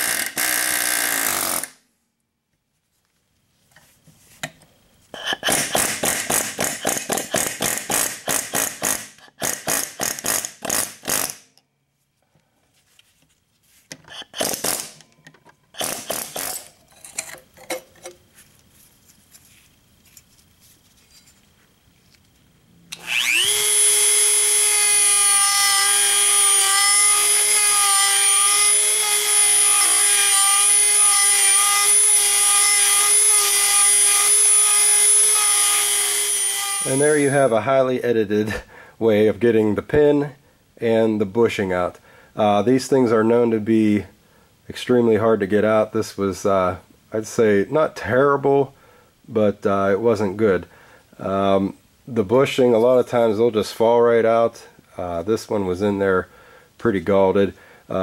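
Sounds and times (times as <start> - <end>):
pneumatic air hammer blows: 0.0 - 1.8, 5.2 - 11.5, 14.1 - 15.0, 15.7 - 16.7, 22.9 - 37.5
rotary tool whining: 15.7 - 16.7, 22.9 - 37.5.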